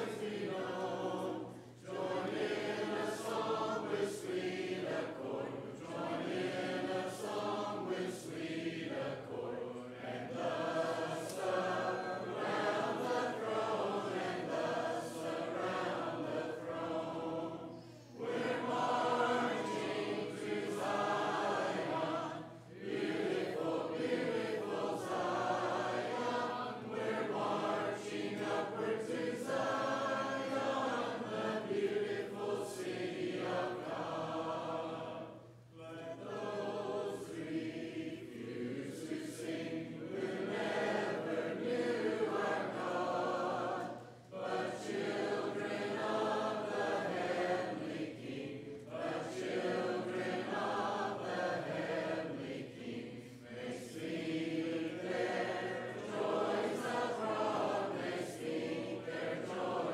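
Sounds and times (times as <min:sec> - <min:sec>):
congregation singing a hymn: 0:00.0 - 0:59.9.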